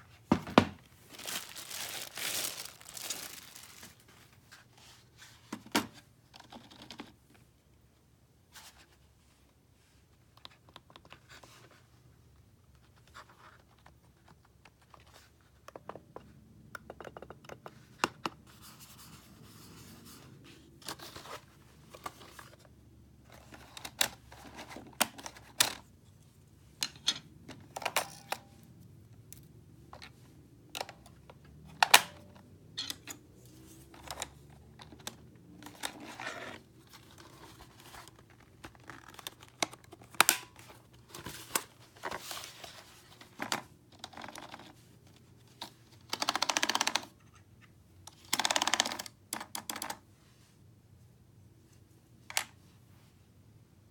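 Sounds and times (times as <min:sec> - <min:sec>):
keyboard plastic clicks and taps: 0:46.0 - 0:47.1, 0:48.1 - 0:50.0.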